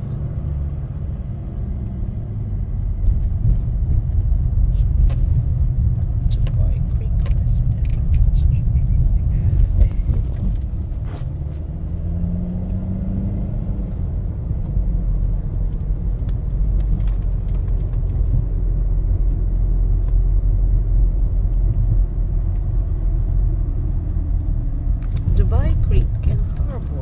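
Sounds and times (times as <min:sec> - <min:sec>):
road and engine rumble in car: 0:00.0 - 0:27.0.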